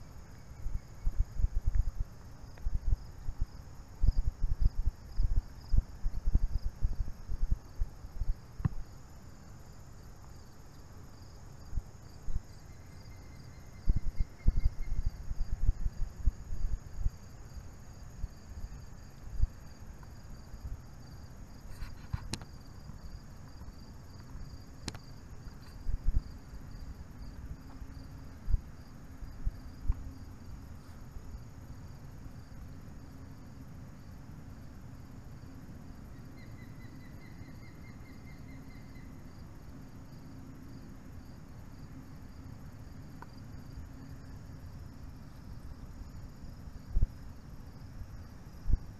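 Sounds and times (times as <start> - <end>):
insect chorus trilling: 0.0 - 48.9
microphone bumps and rumbles: 0.7 - 8.9.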